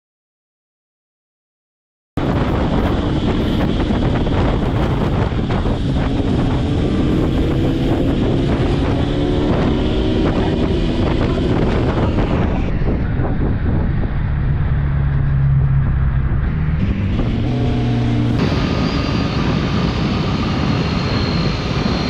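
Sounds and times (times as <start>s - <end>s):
motorcycle engine running: 2.2s - 18.8s
wind noise on microphone: 2.2s - 22.0s.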